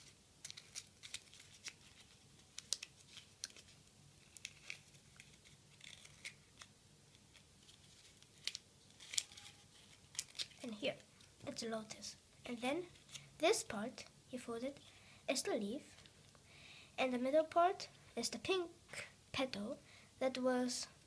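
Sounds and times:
paper crinkling: 0.0s - 11.3s.

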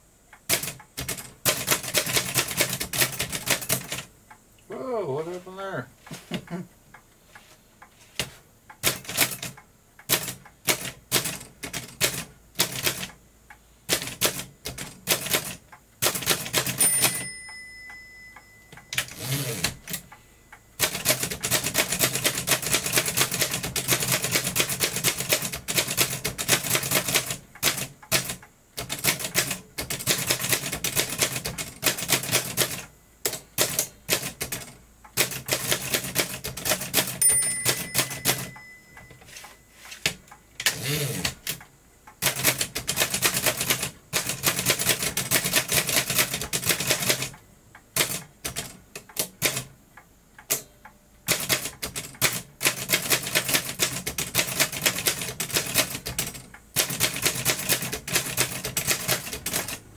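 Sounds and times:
typewriter keystroke clacks: 0.4s - 4.1s, 8.2s - 13.2s, 13.9s - 17.3s, 20.8s - 39.1s, 42.2s - 49.7s, 51.3s - 59.8s
typewriter bell ringing: 16.6s - 20.0s, 37.1s - 39.9s.

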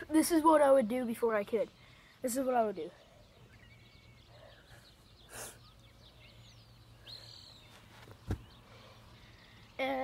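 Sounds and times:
birds chirping: 0.0s - 10.0s
dull thud on grass: 8.0s - 8.5s.

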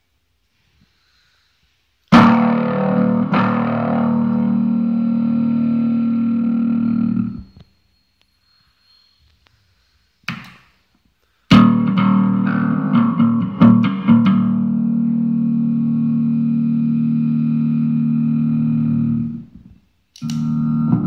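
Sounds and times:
electric bass notes: 2.1s - 7.6s, 11.5s - 21.0s.

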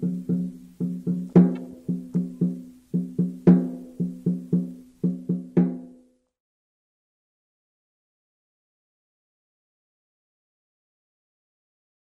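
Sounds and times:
low struck percussion notes: 0.0s - 6.0s.

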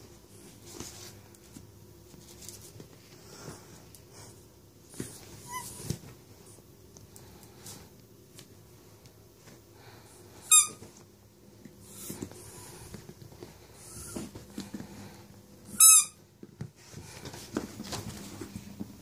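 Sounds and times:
squeaky dog toy squeaking: 10.5s - 10.8s, 15.7s - 16.2s.

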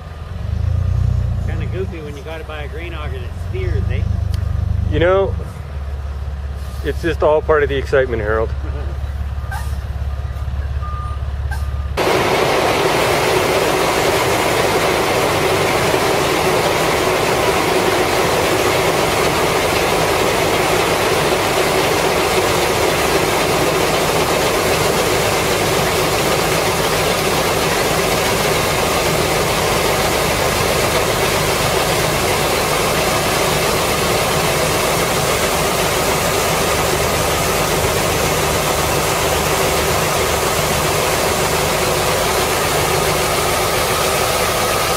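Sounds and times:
grain auger running: 12.0s - 44.9s
grain pouring: 12.0s - 44.9s.

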